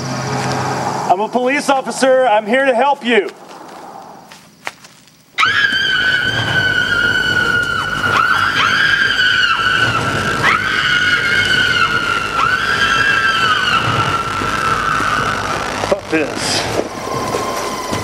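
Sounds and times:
shrill sustained tone: 5.4 - 18.0.

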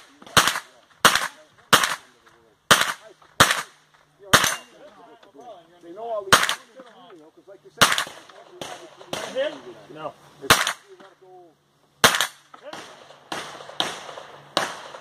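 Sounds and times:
gunshots: 0.0 - 4.8, 6.3 - 6.8, 7.8 - 9.7, 10.5 - 11.0, 12.0 - 15.0.

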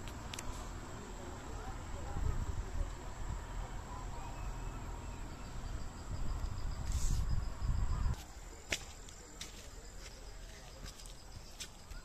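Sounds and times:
rapid insect trill: 0.1 - 12.0
wind buffeting microphone: 1.9 - 3.6, 5.6 - 8.2.

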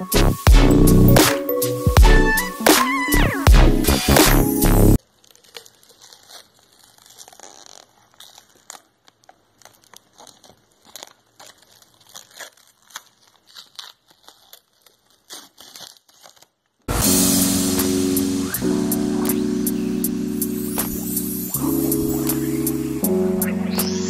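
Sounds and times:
plastic bag crinkling: 5.0 - 24.0.

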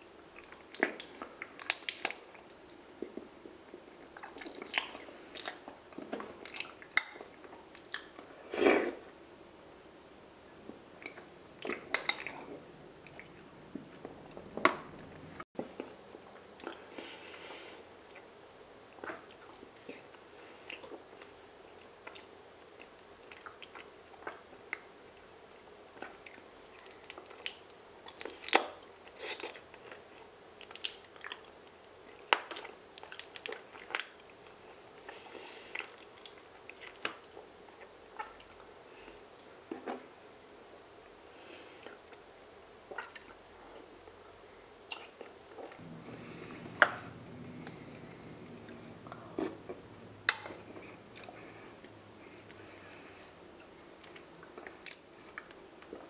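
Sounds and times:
chewing honeycomb: 19.0 - 40.0.

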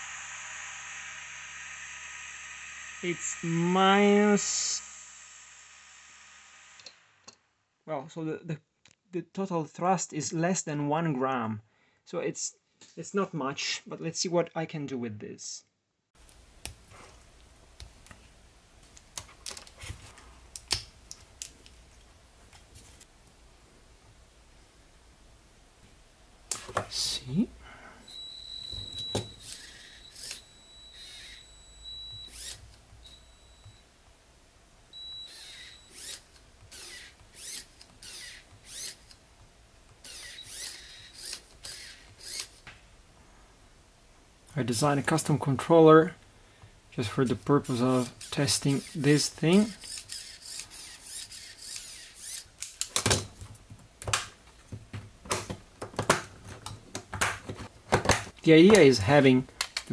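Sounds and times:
small electric motor whine: 0.0 - 7.2, 28.0 - 33.8, 34.9 - 39.2, 40.0 - 42.6, 47.7 - 52.5
plastic gears clicking and rattling: 47.7 - 53.2.

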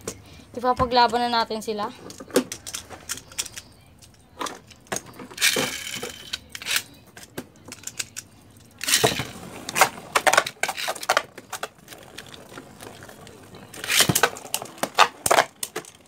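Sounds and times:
spinning tops clattering: 5.3 - 6.9.

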